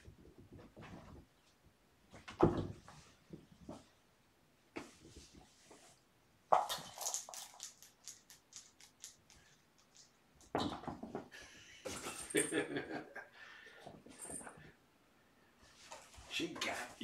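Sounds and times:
kittens rattling and scuffling toys: 0:06.6 - 0:11.3, 0:11.9 - 0:12.6, 0:13.8 - 0:14.8.

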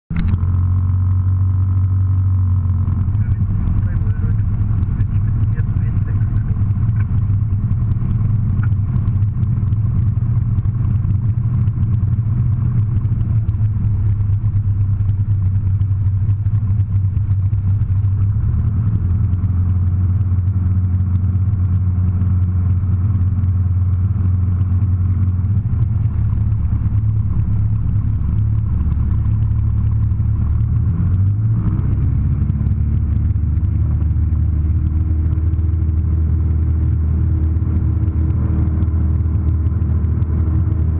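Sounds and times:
aircraft engine and propeller: 0:00.1 - 0:40.9.

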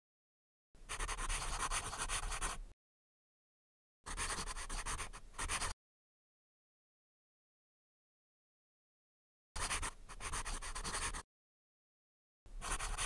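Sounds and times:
pen scratching on paper: 0:00.9 - 0:02.6, 0:04.1 - 0:05.8, 0:09.6 - 0:11.2, 0:12.6 - 0:13.0.

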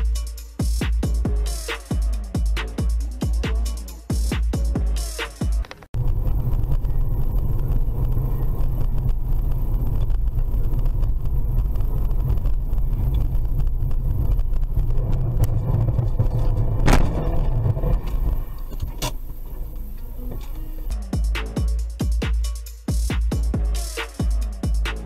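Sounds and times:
car engine and road noise: 0:05.6 - 0:20.9
vehicle collision bang: 0:15.6 - 0:19.7.

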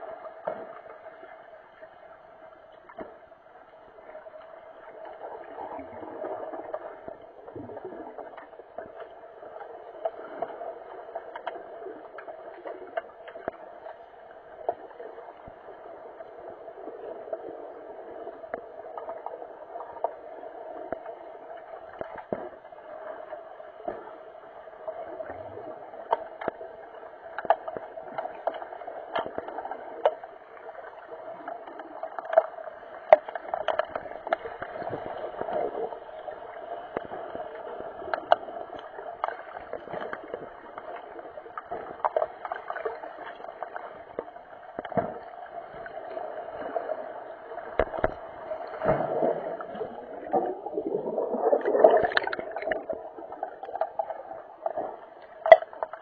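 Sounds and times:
underwater rush: 0:00.0 - 0:56.0
underwater clicks and knocks: 0:02.7 - 0:03.4, 0:11.2 - 0:15.6, 0:25.1 - 0:46.9, 0:47.5 - 0:56.0.

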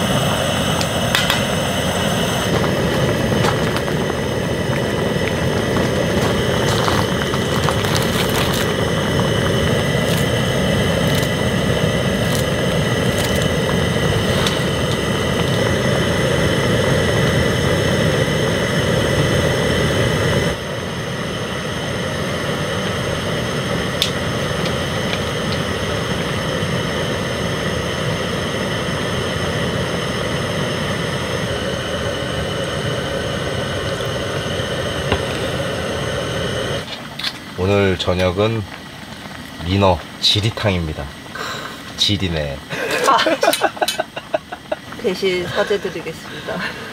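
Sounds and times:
soup bubbling: 0:00.0 - 0:20.5
background hum: 0:00.0 - 0:46.9
gas burner roaring: 0:00.0 - 0:46.9.

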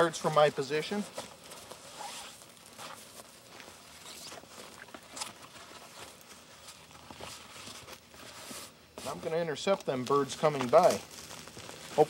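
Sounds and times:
scuffs on dry grass: 0:00.0 - 0:12.0
rustling of soft decoy: 0:00.3 - 0:09.4.

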